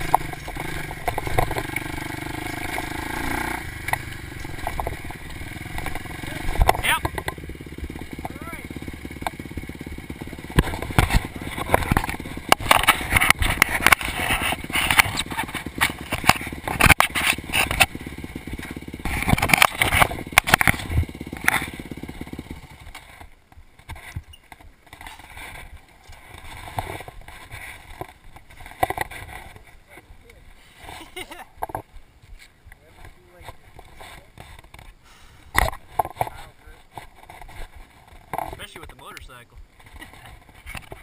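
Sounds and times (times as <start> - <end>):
dirt bike engine idling: 0.0 - 41.0
rustling noise: 11.0 - 17.8, 36.1 - 38.6.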